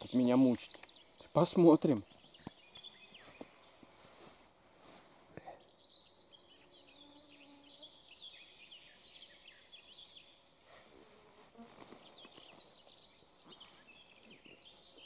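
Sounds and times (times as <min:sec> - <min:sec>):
small birds chirping: 0:00.0 - 0:15.0
insect buzzing: 0:06.1 - 0:08.4, 0:10.9 - 0:12.6.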